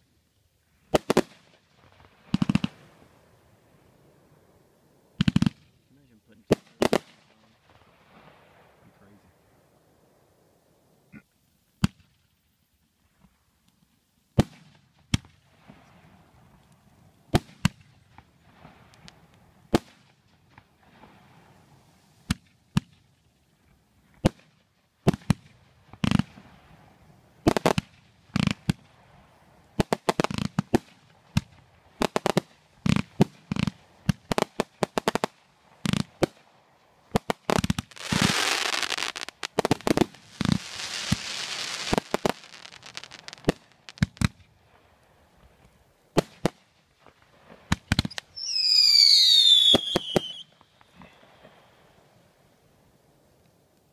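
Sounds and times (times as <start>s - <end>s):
fireworks hissing crackle: 0.7s - 11.1s, 14.3s - 23.2s, 23.8s - 53.9s
fireworks bangs: 0.9s - 4.4s, 24.2s - 44.8s, 45.4s - 52.0s.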